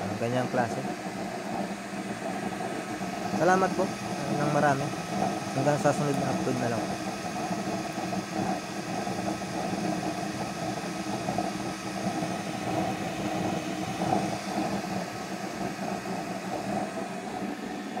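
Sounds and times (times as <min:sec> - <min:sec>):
gas burner flame rushing: 0:00.0 - 0:18.0.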